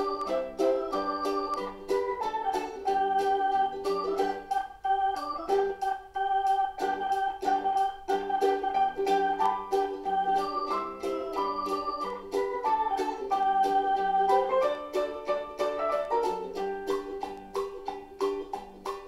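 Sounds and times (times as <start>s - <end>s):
electronic organ melody: 0.0s - 17.3s
ticking beat: 0.0s - 19.0s.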